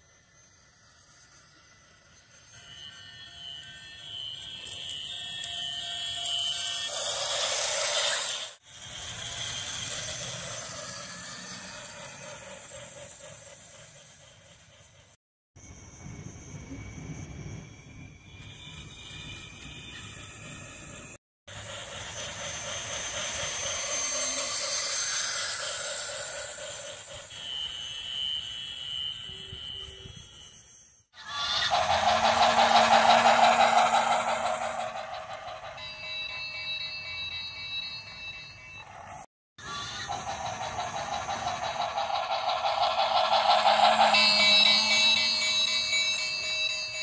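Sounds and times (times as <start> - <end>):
thin steady tone: 0.0 - 47.0
toy locomotive whirring and hissing: 0.0 - 47.0.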